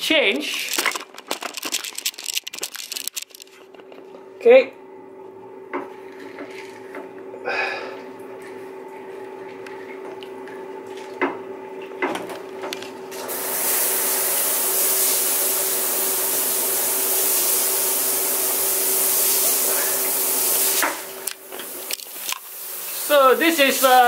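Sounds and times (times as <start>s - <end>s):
steady low hum: 0.0s - 13.1s
shower spraying water on tile: 13.2s - 24.0s.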